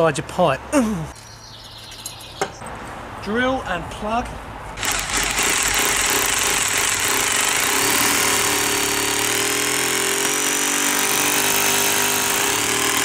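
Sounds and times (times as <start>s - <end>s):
hammer drill boring into masonry: 4.8s - 13.0s.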